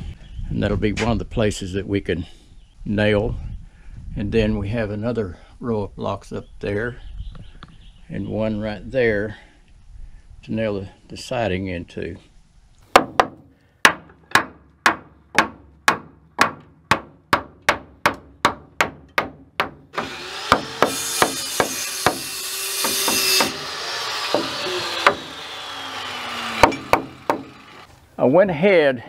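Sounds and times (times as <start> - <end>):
hammer driving nails into wood: 12.9 - 23.6, 24.3 - 25.3, 26.6 - 27.5
power saw cutting: 19.9 - 28.0.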